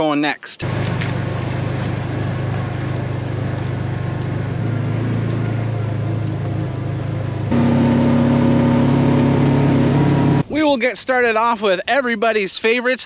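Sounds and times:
vehicle engine running: 0:00.6 - 0:10.5.

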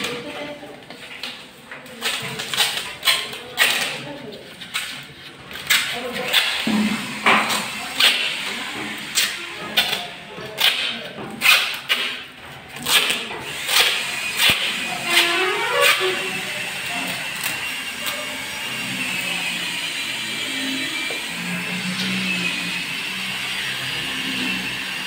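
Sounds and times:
adhesive tape ripping off roll: 0:12.8 - 0:16.3.

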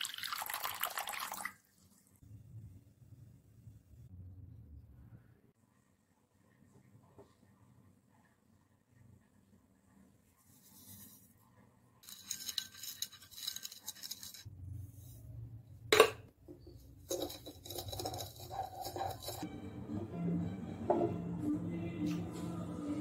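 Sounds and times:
spatula scraping glass bowl: 0:12.0 - 0:14.5, 0:17.0 - 0:19.5.

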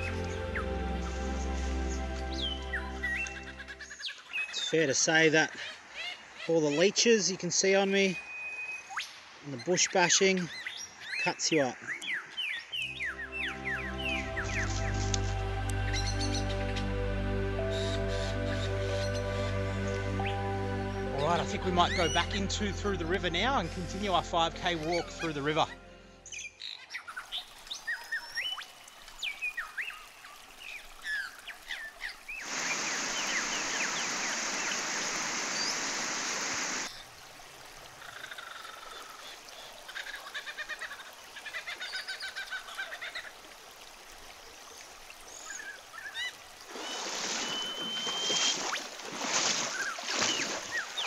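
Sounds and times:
water rushing and splashing: 0:00.0 - 0:05.5, 0:12.7 - 0:23.5, 0:27.2 - 0:51.0
birds chirping: 0:00.0 - 0:26.8, 0:32.4 - 0:36.9, 0:46.7 - 0:51.0
wading through river water: 0:27.1 - 0:51.0.

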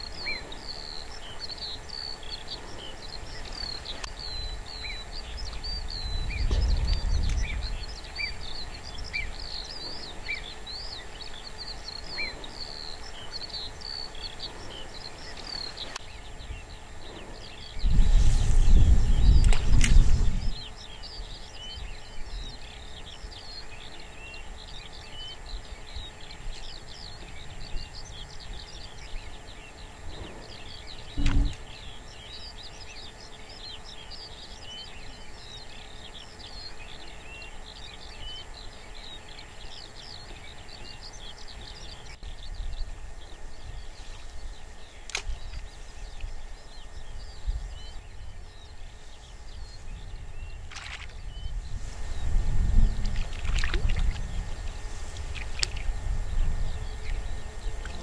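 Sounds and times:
small birds chirping and singing: 0:00.0 - 0:58.0
low thump: 0:31.2 - 0:31.6.

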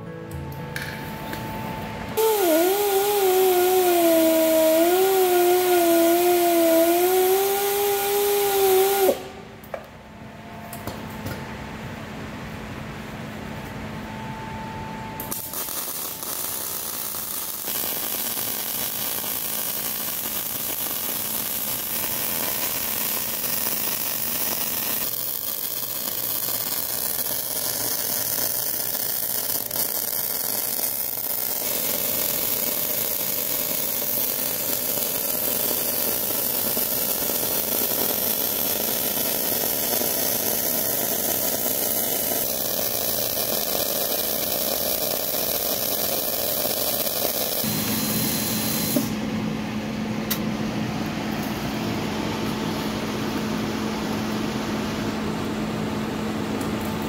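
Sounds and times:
welding arc hissing: 0:02.2 - 0:09.4, 0:15.2 - 0:49.2.

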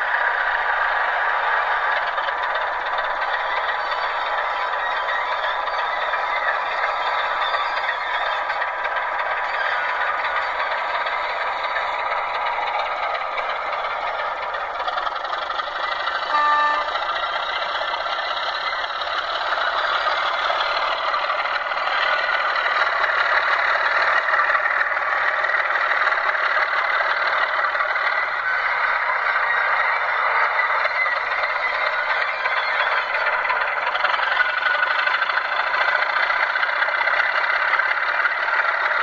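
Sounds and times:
model diesel engine sound: 0:00.0 - 0:39.0
short horn note: 0:16.3 - 0:17.0.

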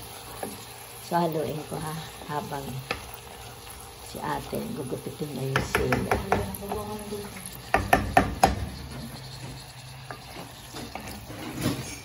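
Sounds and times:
corn sizzling in butter: 0:00.0 - 0:12.0
spoon knocking against pot: 0:05.4 - 0:06.9, 0:07.7 - 0:09.2
wooden spoon scraping pot: 0:05.5 - 0:12.0.

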